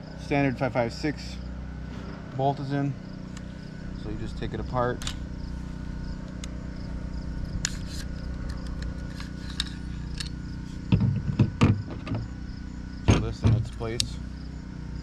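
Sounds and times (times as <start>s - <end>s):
steady low hum: 0.0s - 15.0s
light metallic clicks: 13.2s - 14.2s.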